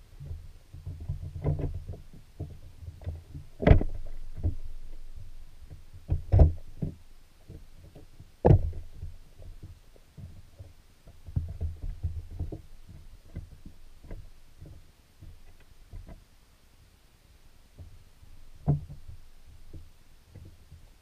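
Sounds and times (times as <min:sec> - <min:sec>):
muffled underwater thumps: 0:00.2 - 0:04.6, 0:05.2 - 0:16.2, 0:18.6 - 0:20.9.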